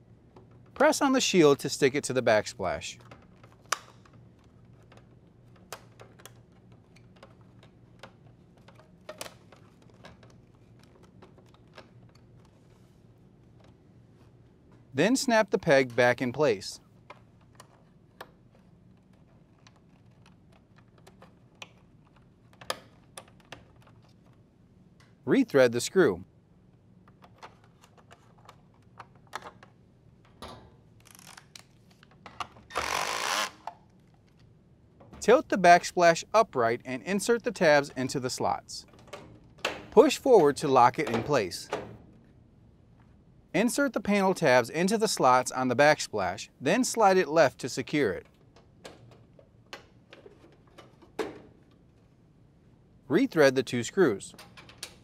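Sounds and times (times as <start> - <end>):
driver bit turning screw into plastic: 32.7 - 33.6.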